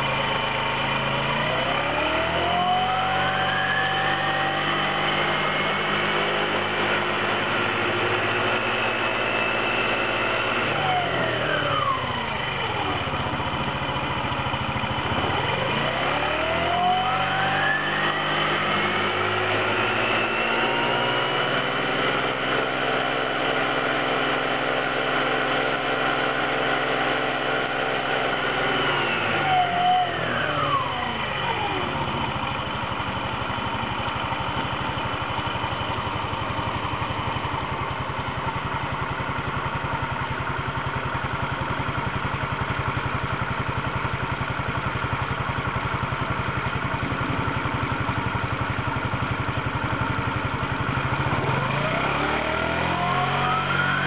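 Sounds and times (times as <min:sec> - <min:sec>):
scooter engine revving: 0:00.0 - 0:54.0.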